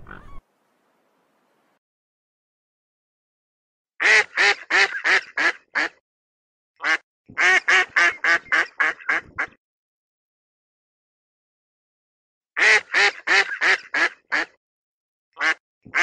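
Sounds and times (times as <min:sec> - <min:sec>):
ducks quacking: 0:00.0 - 0:00.4, 0:04.0 - 0:06.0, 0:06.8 - 0:09.6, 0:12.6 - 0:14.6, 0:15.4 - 0:16.0.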